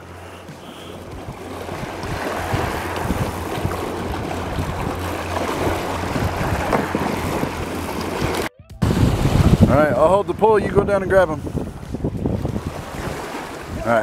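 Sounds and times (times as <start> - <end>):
fast-flowing river: 0.0 - 10.0
wind buffeting microphone: 0.0 - 14.0.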